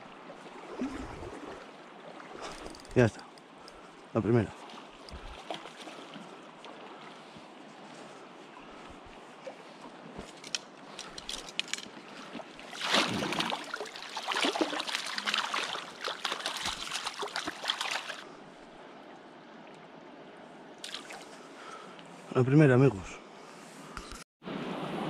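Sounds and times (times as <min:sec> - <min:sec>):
river flowing: 0:00.0 - 0:22.3
fish thrashing and splashing: 0:12.7 - 0:18.2.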